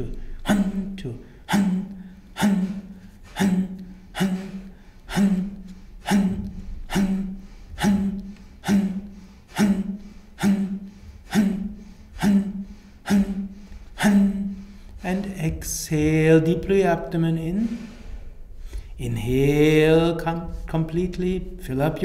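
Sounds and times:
quiet inhale: 0:01.2 - 0:15.0, 0:17.6 - 0:19.0
forceful breath exhalations: 0:01.2 - 0:15.1, 0:17.6 - 0:19.0.

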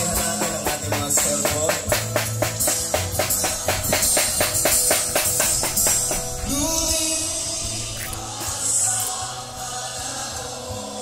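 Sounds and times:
tambourine-like beat: 0:00.0 - 0:06.4
person singing: 0:06.4 - 0:11.0.

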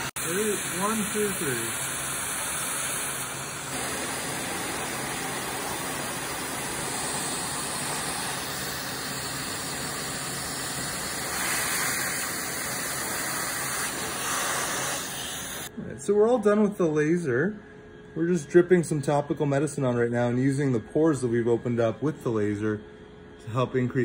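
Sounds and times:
air hose rushing hiss: 0:00.0 - 0:15.7.

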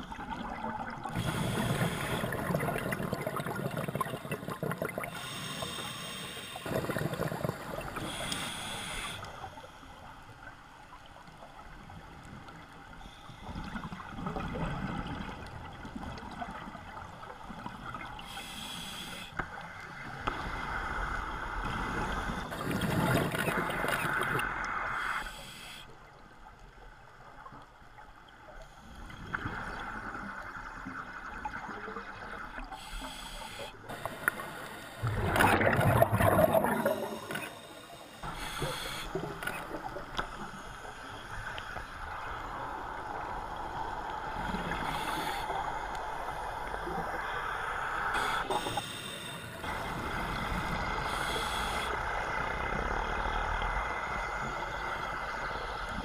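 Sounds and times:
scuba regulator bubbles: 0:00.0 - 0:09.5, 0:21.6 - 0:25.8, 0:29.1 - 0:56.0.

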